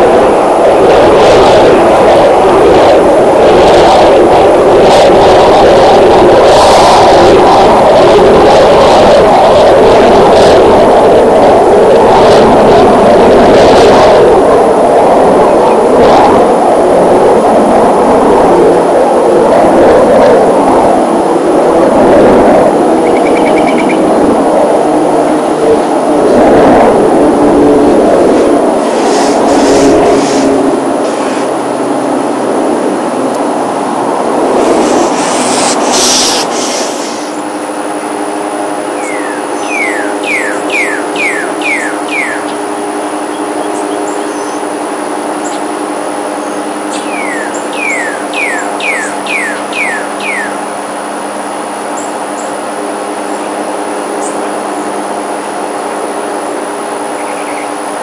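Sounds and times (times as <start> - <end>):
aircraft engine overhead: 0.0 - 58.0
steady hum: 0.0 - 58.0
songbird chirping: 23.0 - 24.0, 39.0 - 42.6, 46.4 - 50.6.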